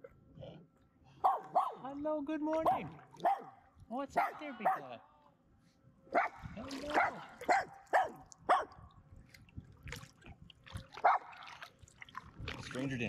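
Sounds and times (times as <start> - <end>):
dog barking: 1.2 - 1.9, 2.6 - 3.6, 4.2 - 5.0, 6.1 - 8.8, 11.0 - 11.4.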